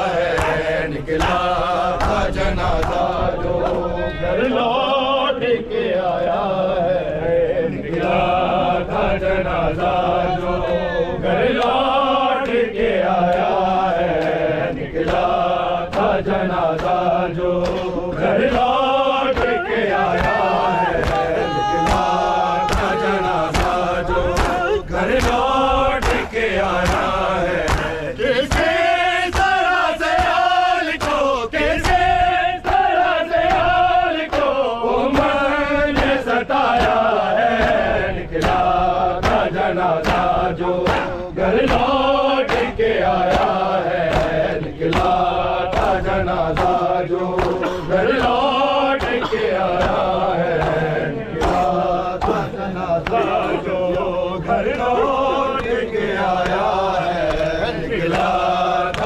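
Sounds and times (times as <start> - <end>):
men chanting over loudspeakers: 0.0 - 59.0
chest beating slaps: 0.3 - 3.8, 15.0 - 17.0, 17.6 - 33.7, 37.6 - 54.9, 55.5 - 59.0.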